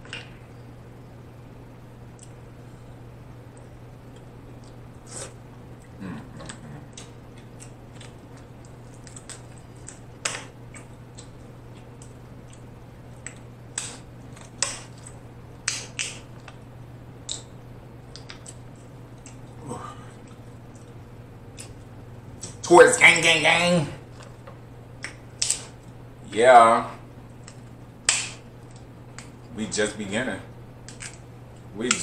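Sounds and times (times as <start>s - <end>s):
steady low hum: 0.0s - 32.0s
wet eating and sucking sounds: 4.6s - 7.1s.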